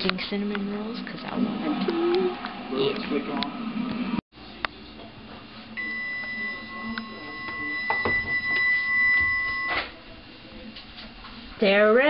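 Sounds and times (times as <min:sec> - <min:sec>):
oven timer high beep: 0:05.8 - 0:09.9.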